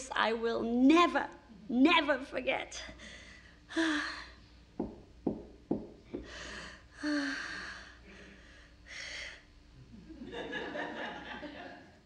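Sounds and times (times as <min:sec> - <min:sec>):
sharp knocks: 0:04.8 - 0:06.4.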